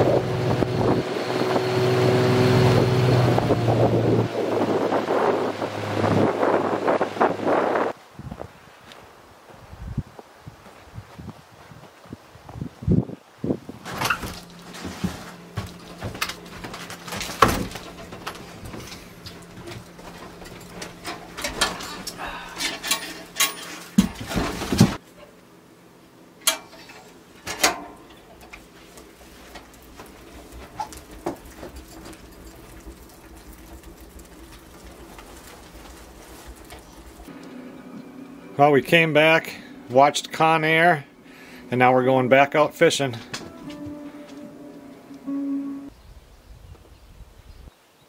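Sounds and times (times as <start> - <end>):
low hum: 14.0 - 46.1
wood stove door: 26.4 - 28.5.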